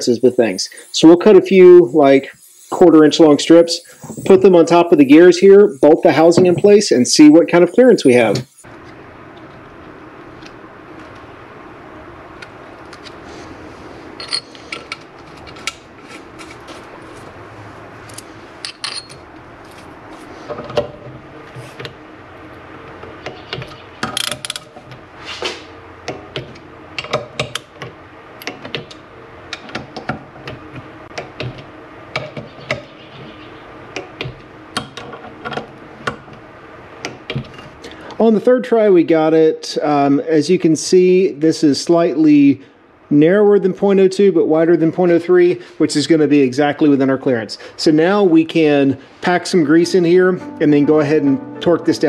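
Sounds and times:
metal clinks: 0:18.6 - 0:19.2.

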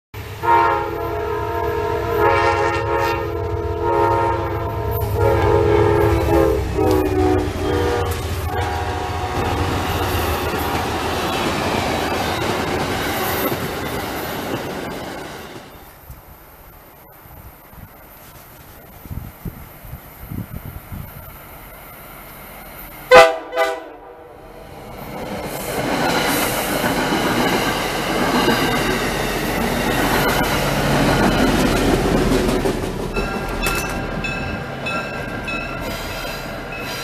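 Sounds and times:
train air horn blasts: 0:00.4 - 0:09.7, 0:23.1 - 0:24.4
train cars rumbling and clattering: 0:01.0 - 0:16.3, 0:24.4 - 0:37.0.

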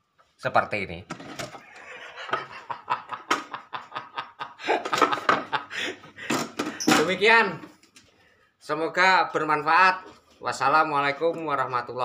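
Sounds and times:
man laughing: 0:01.6 - 0:06.5.

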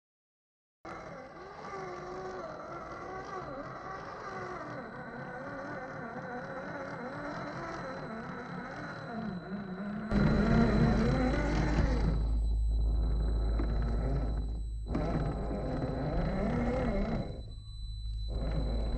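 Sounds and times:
electric motor whining: 0:00.9 - 0:18.9
low rumble: 0:10.1 - 0:18.9.

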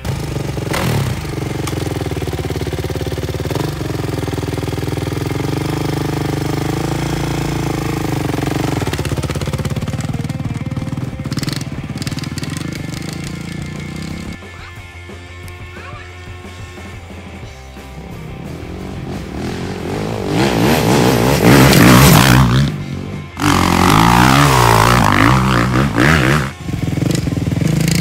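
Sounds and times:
dirt bike engine idling and revving: 0:00.0 - 0:28.0.

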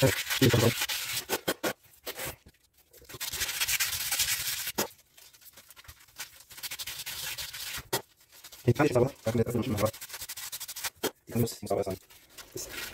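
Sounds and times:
hand sanding metal rim: 0:06.1 - 0:11.1.

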